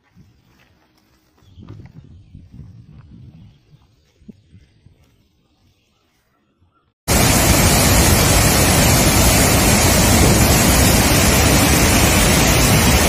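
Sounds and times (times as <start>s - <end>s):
water rushing through dam spillway: 7.1s - 13.0s.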